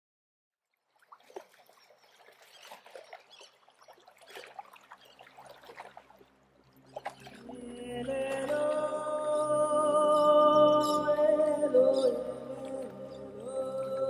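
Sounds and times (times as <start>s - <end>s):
small splashes: 0.6s - 9.2s
water lapping and trickling: 0.6s - 14.0s.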